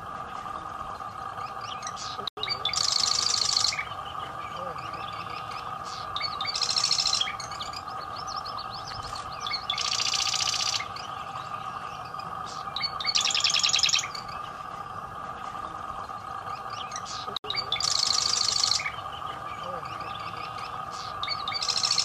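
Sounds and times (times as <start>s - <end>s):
steady drone: 0.0s - 22.0s
wren buzzy trills: 0.0s - 22.0s
bird chips: 0.1s - 22.0s.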